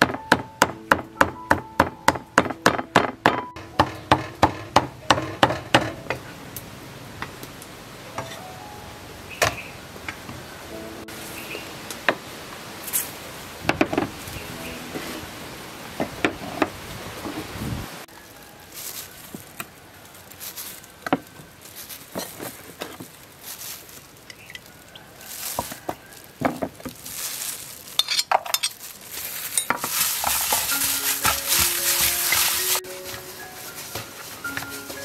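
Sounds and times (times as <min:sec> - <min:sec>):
glass jars clinking on table: 0:28.0 - 0:28.8
wet squishing of mixing meat: 0:28.8 - 0:32.9.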